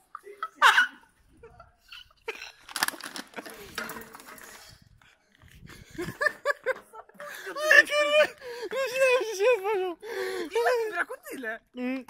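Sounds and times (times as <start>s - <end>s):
laughter: 0.1s - 2.5s, 5.7s - 9.2s
rough rustling and scraping: 2.2s - 5.7s.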